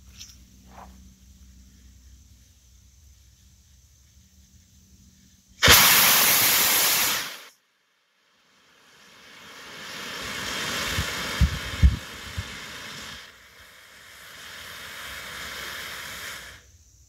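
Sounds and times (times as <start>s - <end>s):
rocket motor exhaust hissing: 5.4s - 7.6s, 8.4s - 17.0s.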